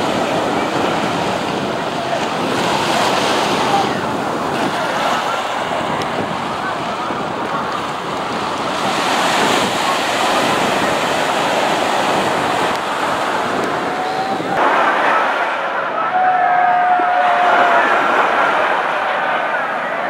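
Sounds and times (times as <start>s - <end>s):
waves breaking on sandy beach: 0.0s - 20.0s.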